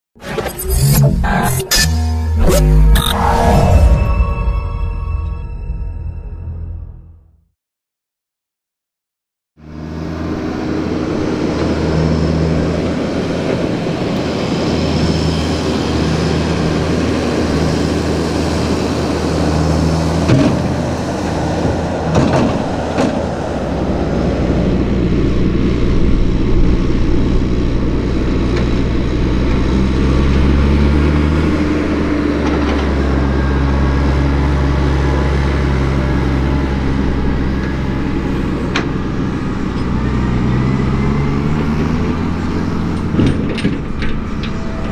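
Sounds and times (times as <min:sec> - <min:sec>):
tractor diesel engines running: 0:09.6 - 0:44.9.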